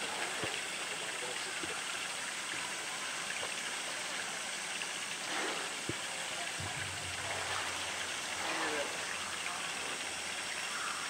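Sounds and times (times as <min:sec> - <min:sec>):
water sloshing and splashing: 0:00.0 - 0:01.8, 0:04.8 - 0:11.0
rush of moving water: 0:00.0 - 0:11.0.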